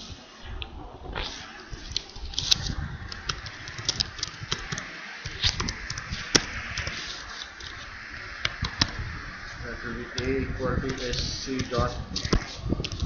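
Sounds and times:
steady background hiss: 0:00.0 - 0:13.0
keyboard typing: 0:02.0 - 0:07.0.

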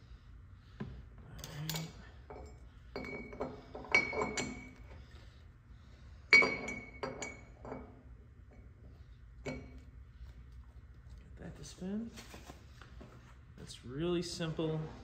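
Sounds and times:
steel parts clinking: 0:01.4 - 0:04.8.

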